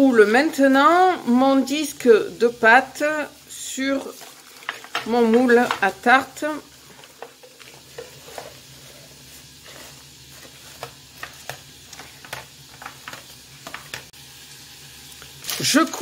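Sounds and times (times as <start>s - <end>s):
baking paper rustling: 3.8s - 14.1s.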